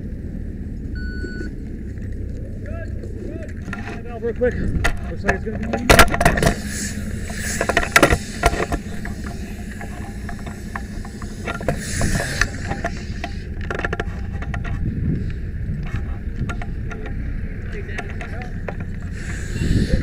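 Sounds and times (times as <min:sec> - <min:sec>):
fire engine motor rumbling: 0:00.0 - 0:20.0
short hiss: 0:06.5 - 0:13.4, 0:19.1 - 0:20.0.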